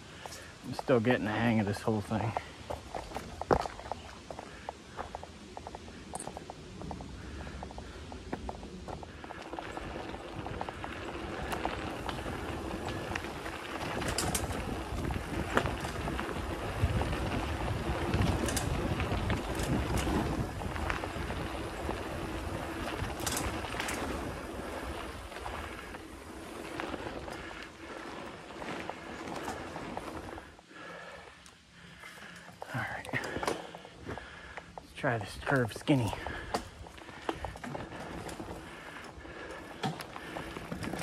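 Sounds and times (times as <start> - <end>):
bike tyre rumble on dirt: 0.0 - 41.0
bike clicks and rattles: 0.2 - 41.0
wind on microphone: 9.9 - 25.9.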